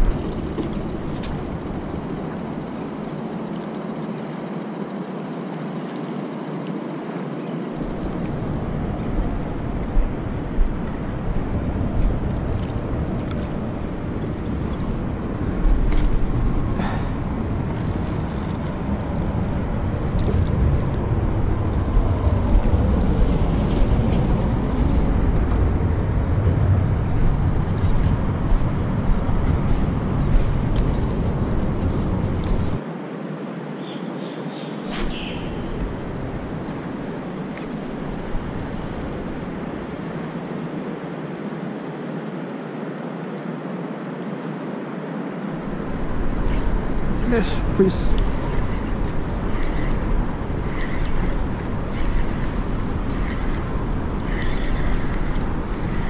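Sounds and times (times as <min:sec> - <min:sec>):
wind buffeting microphone: 0:00.0 - 0:03.2, 0:07.7 - 0:32.8, 0:44.8 - 0:56.0.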